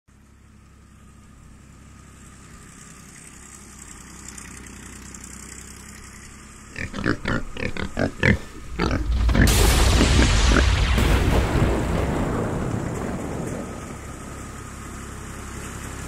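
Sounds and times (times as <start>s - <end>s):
low engine hum: 0.1s - 16.0s
pig grunts: 6.7s - 10.7s.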